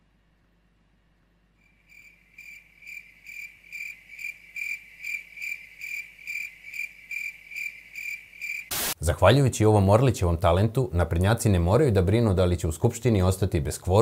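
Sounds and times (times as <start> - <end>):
cricket chirping: 1.6 - 8.8.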